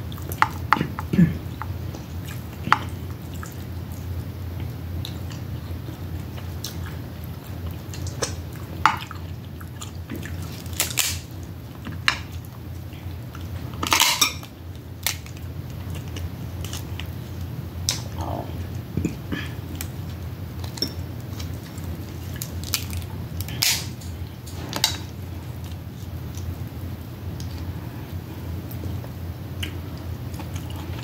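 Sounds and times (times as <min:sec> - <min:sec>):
steady low hum: 0:00.0 - 0:31.0
crab shell cracking: 0:10.5 - 0:11.3, 0:15.0 - 0:16.9, 0:22.2 - 0:24.1.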